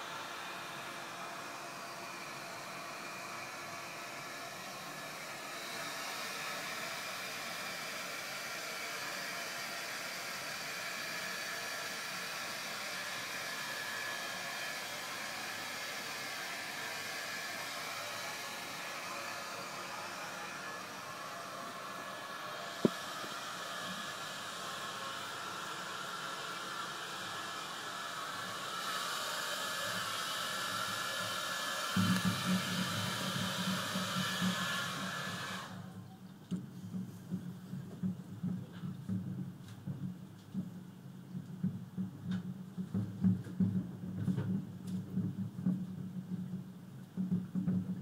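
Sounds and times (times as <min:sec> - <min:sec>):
steady background hiss: 0:00.0 - 0:36.8.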